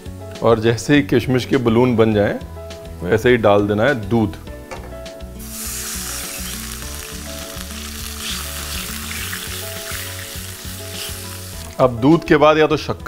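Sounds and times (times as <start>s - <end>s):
milk sizzling in hot ghee: 5.4s - 12.2s.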